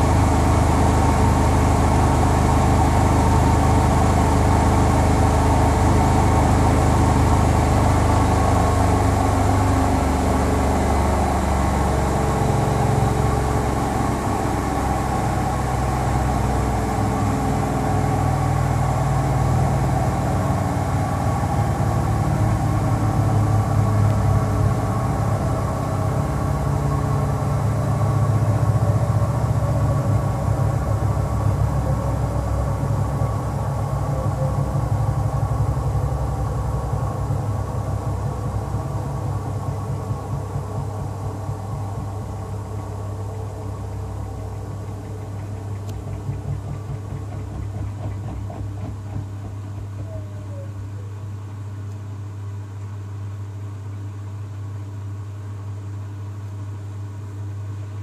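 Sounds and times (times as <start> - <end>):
washing machine spin winding down: 0.0 - 53.2.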